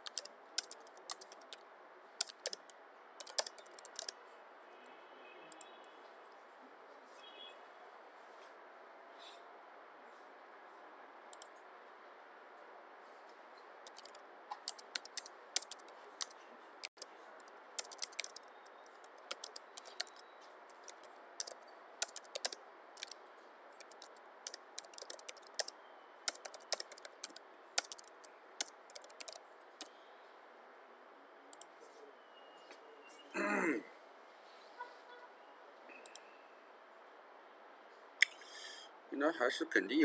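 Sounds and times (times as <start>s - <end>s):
keyboard typing: 0.0s - 1.6s, 2.2s - 4.2s, 11.3s - 11.7s, 13.8s - 29.9s, 36.0s - 36.2s.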